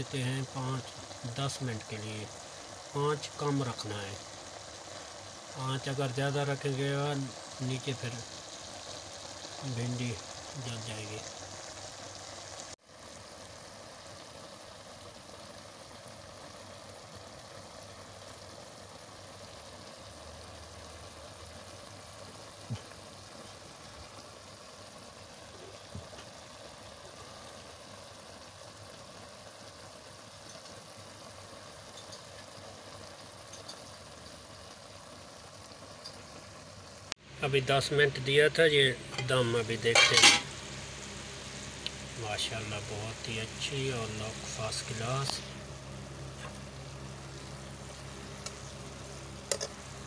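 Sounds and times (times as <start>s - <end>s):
pot sizzling and hissing: 0.0s - 50.0s
faint hum: 34.0s - 50.0s.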